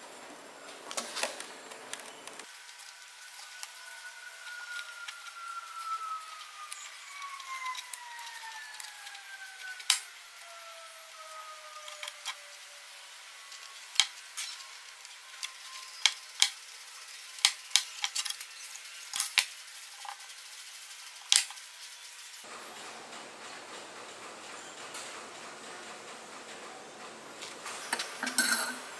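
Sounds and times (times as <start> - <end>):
tape pulled off roll squealing: 2.7 - 12.8.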